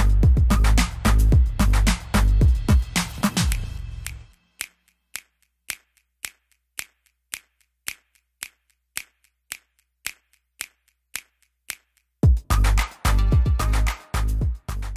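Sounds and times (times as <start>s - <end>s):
handclap beat: 0.0s - 14.9s
faint ticks: 4.6s - 12.2s.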